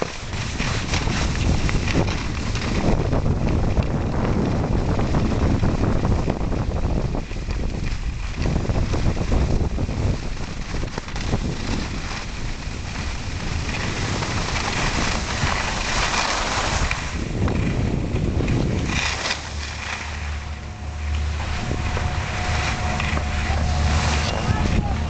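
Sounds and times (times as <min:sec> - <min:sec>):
skis scraping over packed snow: 0:00.0 - 0:25.0
wind buffeting microphone: 0:00.0 - 0:25.0
low steady hum: 0:17.2 - 0:25.0.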